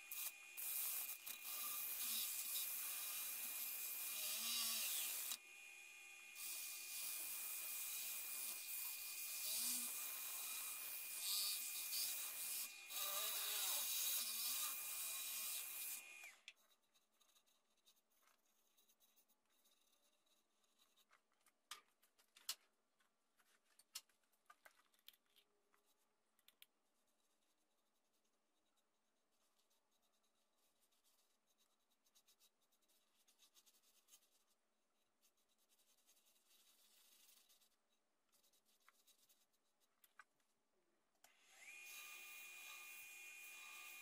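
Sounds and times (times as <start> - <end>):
faint scratching and rubbing: 16.5 - 40.6
power tool motor whine: 41.3 - 44.0.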